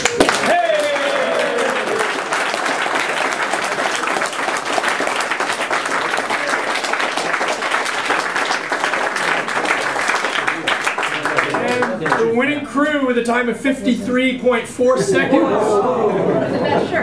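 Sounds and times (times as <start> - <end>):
crowd applauding: 0.0 - 12.3.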